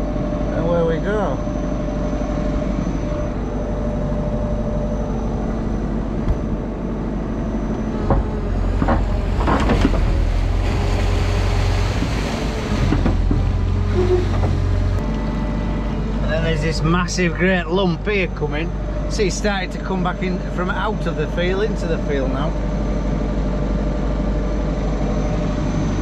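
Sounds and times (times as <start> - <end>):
diesel engine running: 0.0 - 26.0
excavator bucket knocks and scrapes: 8.0 - 15.0.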